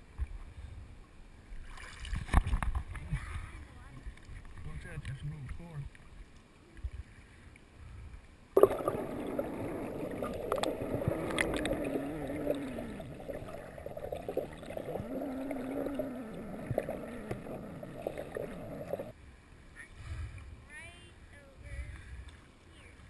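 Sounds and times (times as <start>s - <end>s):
muffled underwater river sound: 0.0s - 23.0s
wavering low hum: 8.6s - 19.1s.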